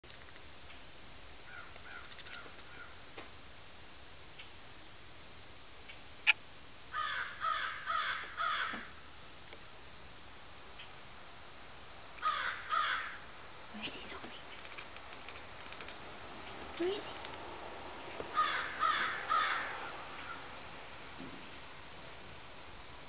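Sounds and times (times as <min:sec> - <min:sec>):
crow cawing: 0:01.5 - 0:02.9, 0:06.9 - 0:09.0, 0:12.2 - 0:13.2, 0:18.3 - 0:20.5.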